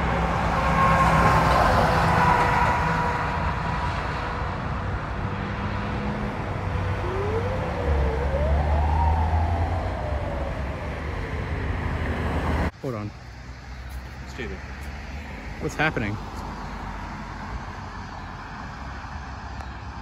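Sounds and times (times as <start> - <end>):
road traffic rumble: 0.0 - 20.0
ambulance siren: 6.7 - 12.7.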